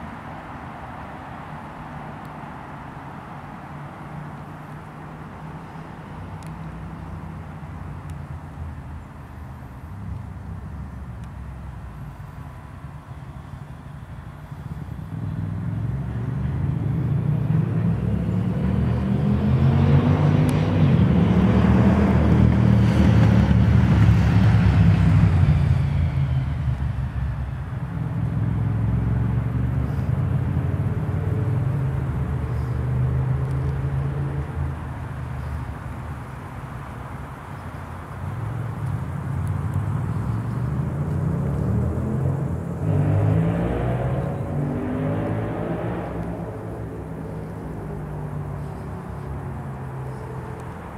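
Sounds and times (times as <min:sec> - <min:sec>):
vehicle engine passing by: 0:15.1 - 0:35.8, 0:38.4 - 0:50.9.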